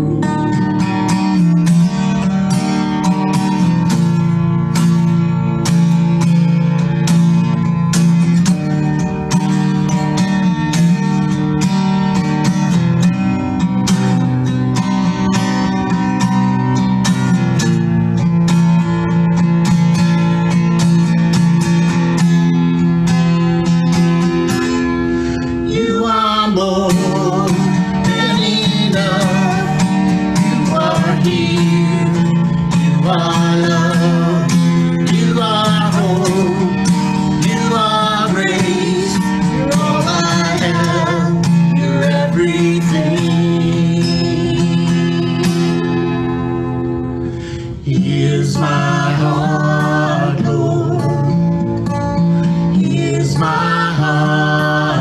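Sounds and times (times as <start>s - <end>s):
acoustic guitar strumming chords: 0.0s - 55.0s.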